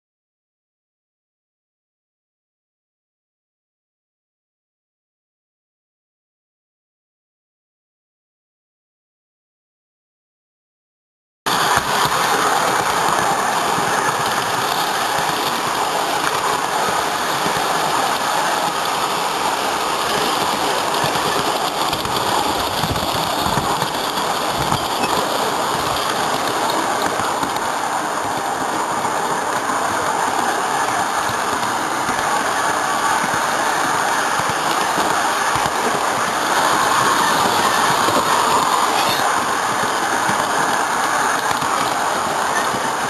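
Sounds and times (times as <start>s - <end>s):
model train wheels rumbling: 11.5s - 43.0s.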